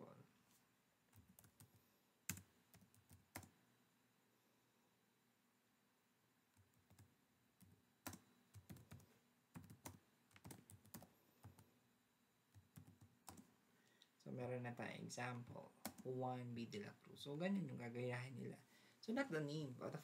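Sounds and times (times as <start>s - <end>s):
computer keyboard typing: 1.1s - 3.6s, 6.5s - 11.7s, 12.5s - 13.5s, 15.4s - 16.1s.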